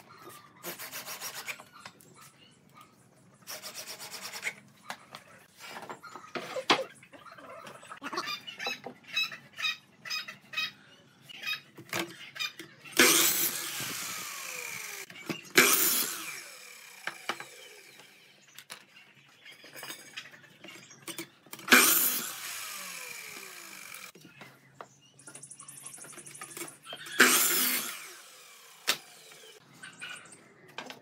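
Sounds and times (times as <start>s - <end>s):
power tool bursts with falling whine: 27.2s - 29.4s.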